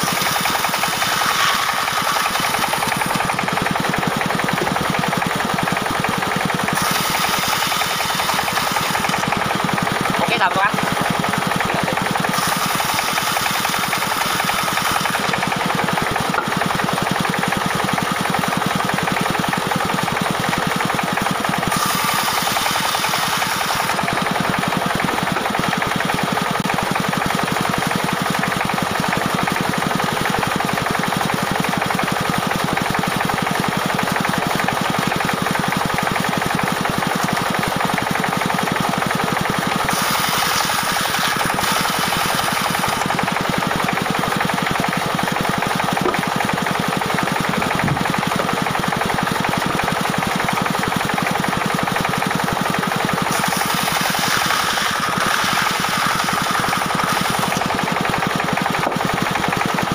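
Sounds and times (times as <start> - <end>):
saw blade hissing through log: 0.0 - 3.3, 6.7 - 9.4, 12.2 - 15.5, 21.7 - 24.0, 39.8 - 43.1, 53.3 - 57.6
band sawmill engine running: 0.0 - 59.9.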